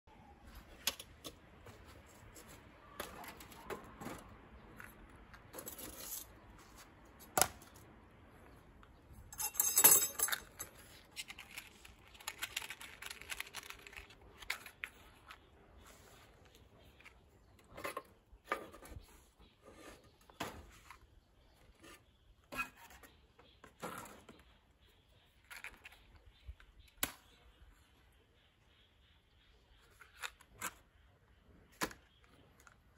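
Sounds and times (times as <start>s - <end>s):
charcoal clinking on metal: 9.3s - 10.8s.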